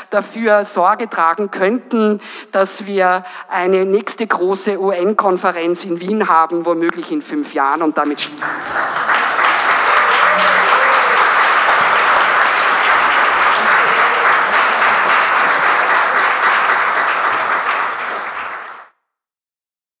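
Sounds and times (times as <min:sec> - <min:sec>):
audience applauding: 0:08.4 - 0:18.9.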